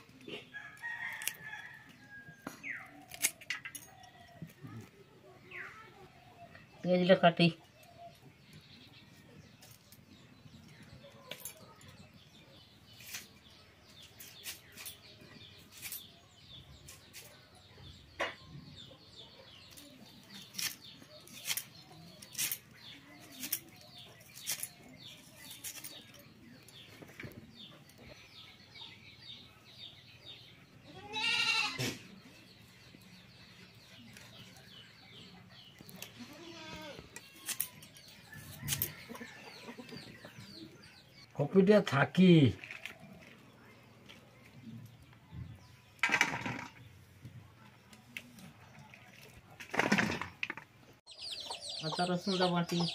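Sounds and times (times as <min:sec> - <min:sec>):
faint birds chirping: 0:00.0 - 0:52.9
goat bleating: 0:30.9 - 0:32.0, 0:36.2 - 0:37.1.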